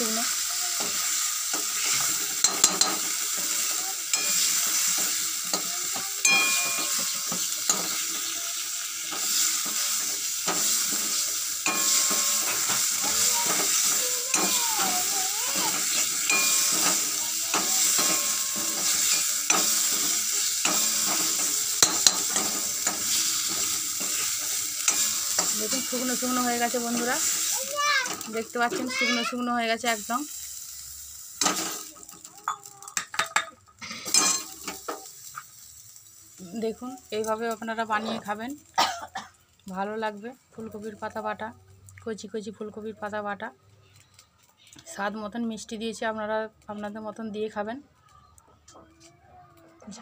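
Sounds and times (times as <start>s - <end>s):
paste sizzling in oil: 0.0s - 41.4s
metal spatula scraping a pan: 0.8s - 27.5s.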